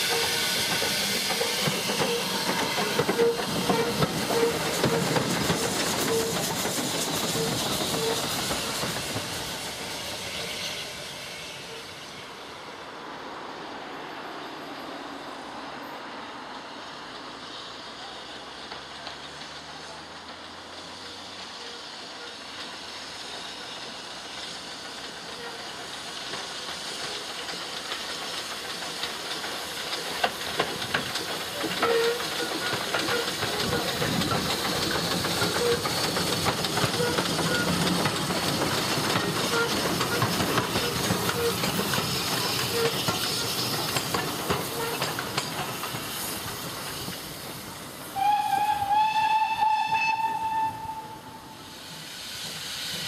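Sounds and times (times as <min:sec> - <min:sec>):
steam whistle blast: 0:00.0 - 0:05.2, 0:48.1 - 0:51.8
locomotive beat: 0:00.0 - 0:10.5, 0:23.8 - 0:53.0
steam hissing: 0:00.0 - 0:15.8, 0:16.4 - 0:53.0.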